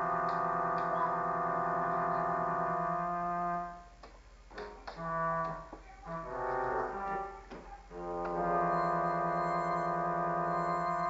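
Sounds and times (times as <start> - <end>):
electronic keyboard chord: 0.0 - 3.9, 4.6 - 11.0
short keyboard notes: 4.5 - 11.0.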